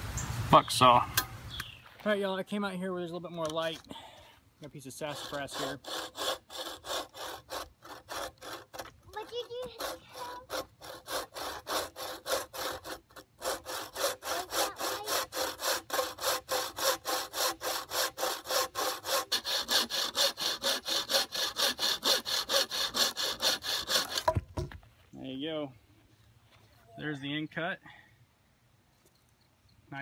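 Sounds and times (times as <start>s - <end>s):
saw cutting through wood: 4.6s - 24.4s.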